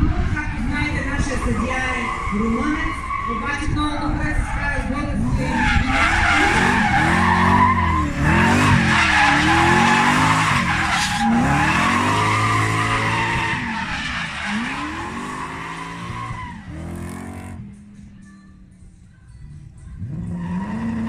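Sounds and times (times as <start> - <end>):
car engine revving: 4.3 - 18.1, 19.8 - 21.0
tyres squealing: 5.4 - 17.2.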